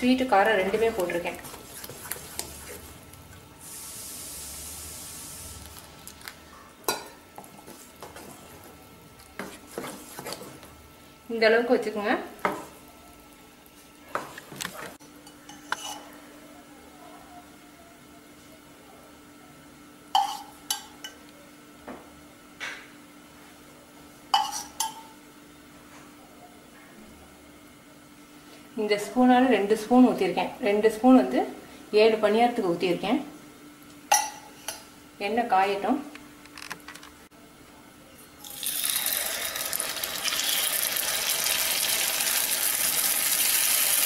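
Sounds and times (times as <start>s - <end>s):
spoon stirring thick batter: 0.8s - 3.0s, 7.4s - 10.7s.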